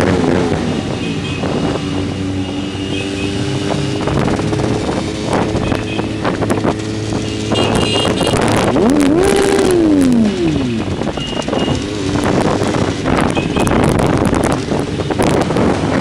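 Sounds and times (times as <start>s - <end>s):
motorcycle engines running: 0.0s - 16.0s
wind buffeting microphone: 3.3s - 16.0s.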